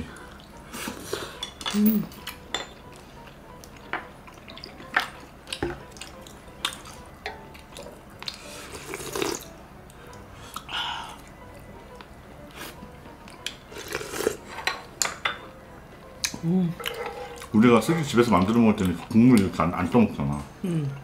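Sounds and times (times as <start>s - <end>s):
slurping soup: 8.3s - 9.5s, 13.7s - 14.5s.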